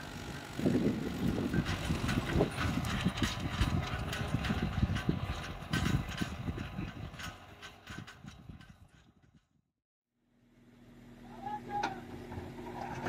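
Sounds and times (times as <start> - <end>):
harrow rattling and clanking: 0.0 - 9.6
tractor engine running: 0.0 - 9.6.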